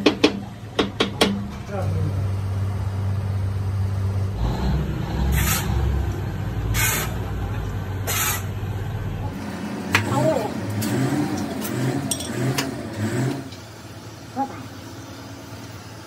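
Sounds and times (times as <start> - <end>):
low machinery hum: 0.0 - 16.0
sand pouring with hiss: 5.3 - 5.7, 6.8 - 7.1.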